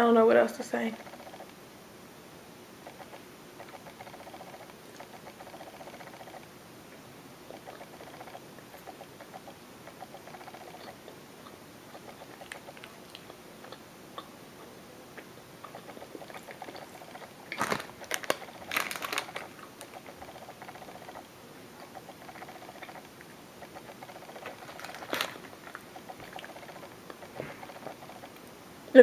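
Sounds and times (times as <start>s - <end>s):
person chewing muffin: 1.0s - 1.6s, 2.8s - 6.5s, 7.5s - 28.5s
mouth clicks: 7.5s - 18.6s
plastic wrapper crinkling: 17.5s - 20.1s, 24.4s - 25.9s.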